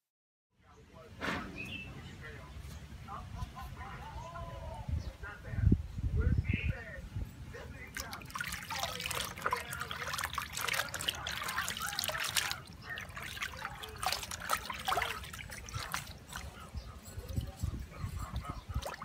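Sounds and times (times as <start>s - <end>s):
water sloshing in a tub: 7.7s - 19.0s.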